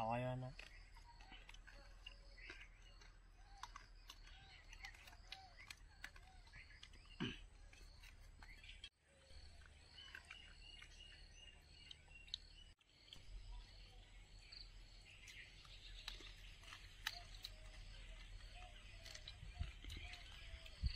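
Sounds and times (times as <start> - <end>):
bird chirps: 0.0 - 20.9
small clicks: 15.2 - 20.9.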